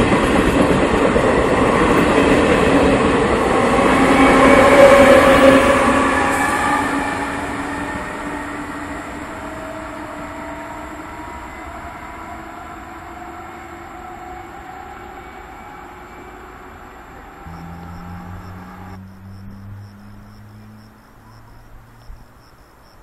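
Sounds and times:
train wheels rumbling on rails: 0.0s - 10.9s
traction motor whine: 17.4s - 19.1s.

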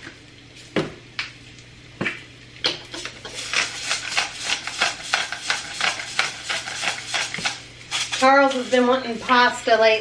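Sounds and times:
pepper mill grinding: 2.9s - 9.4s.

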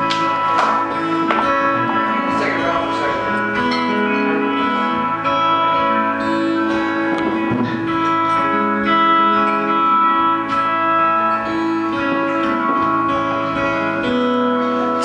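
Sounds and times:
acoustic guitar: 0.0s - 15.0s
electric guitar: 0.0s - 15.0s
keyboard: 0.0s - 15.0s.

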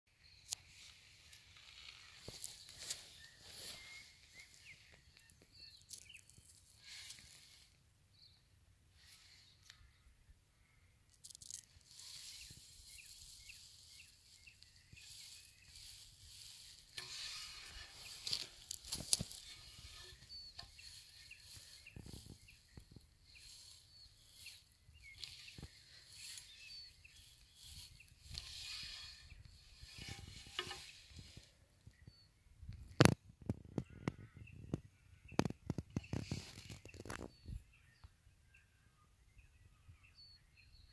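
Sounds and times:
faint bird calls: 0.2s - 40.9s
microphone handling in grass: 0.4s - 7.8s, 11.2s - 38.0s
brief rustles: 11.1s - 31.6s, 35.3s - 37.6s.

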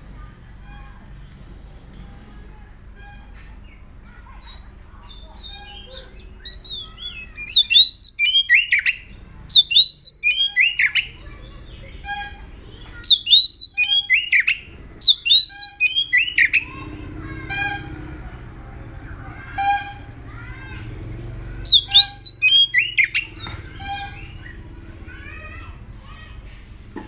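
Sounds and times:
bird singing whistled phrases: 4.5s - 12.3s, 13.0s - 16.7s, 21.6s - 24.7s.

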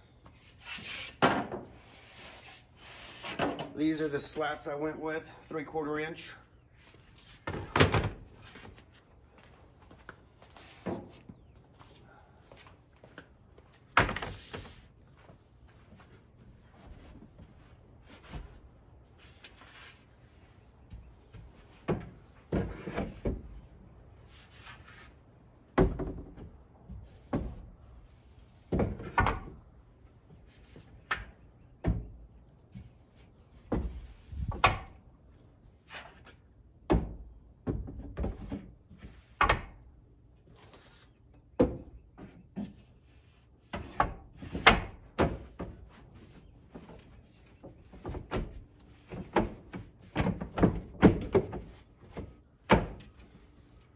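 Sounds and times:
wooden boards knocking and clattering: 1.2s - 1.7s, 21.7s - 23.5s, 28.7s - 29.6s, 33.7s - 35.0s, 43.7s - 53.2s.

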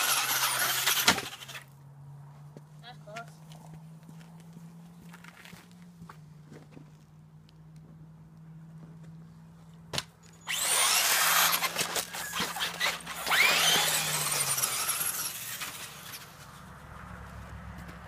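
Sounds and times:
toy car motor whining: 0.0s - 1.8s, 10.4s - 16.6s
wheels spinning on wet pavement: 0.0s - 1.8s, 10.4s - 18.0s.

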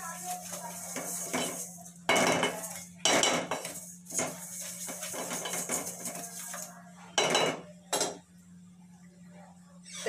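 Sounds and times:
spatula scraping metal pot: 0.0s - 2.9s, 3.5s - 6.7s.

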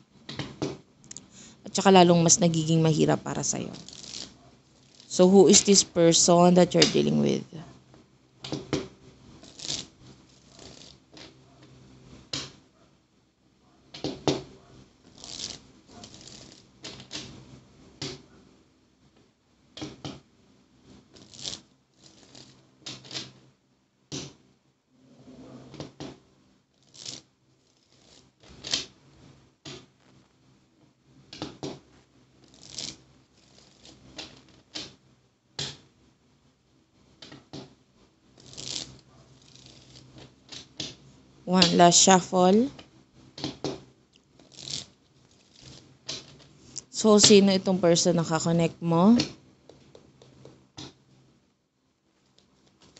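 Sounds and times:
cards being shuffled: 3.7s - 5.8s, 8.5s - 11.4s, 15.1s - 17.4s, 21.1s - 23.4s, 26.8s - 28.9s, 31.3s - 35.0s, 38.4s - 41.0s, 43.4s - 47.4s, 52.4s - 52.9s.

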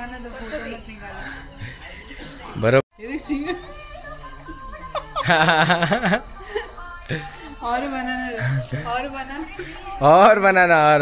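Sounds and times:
crickets chirping: 0.0s - 11.0s
people talking: 0.0s - 11.0s.

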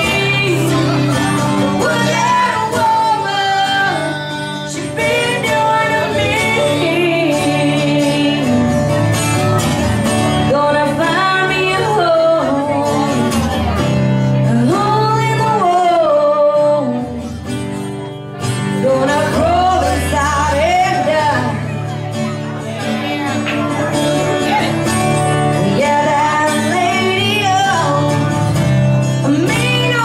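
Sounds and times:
woman and man singing: 0.0s - 9.2s, 10.3s - 13.6s, 14.2s - 17.4s, 18.7s - 23.3s, 23.9s - 30.0s
strummed acoustic guitar: 0.0s - 30.0s.

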